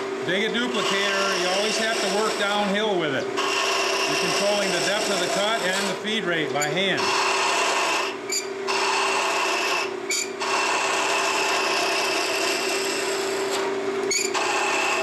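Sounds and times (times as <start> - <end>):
lathe motor hum: 0.0 - 15.0
hiss of wood being shaved: 3.6 - 6.0.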